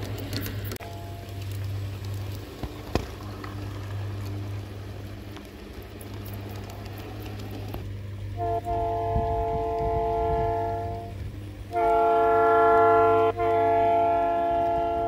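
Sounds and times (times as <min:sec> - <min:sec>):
clicks of model train: 0:00.0 - 0:15.0
model trains humming on track: 0:00.0 - 0:15.0
model locomotive air horn chord: 0:00.8 - 0:01.6, 0:08.3 - 0:15.0.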